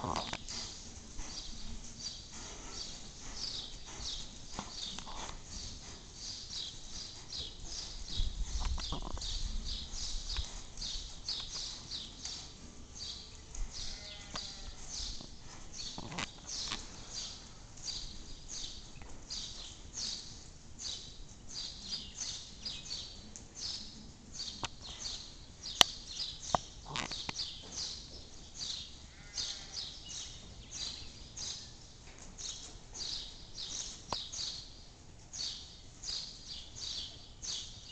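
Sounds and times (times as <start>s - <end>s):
hooves on sand: 0.0s - 23.9s.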